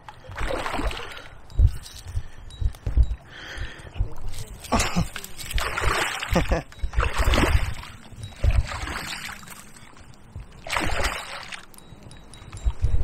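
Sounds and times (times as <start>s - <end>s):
fish splashing at water surface: 10.6s - 11.6s.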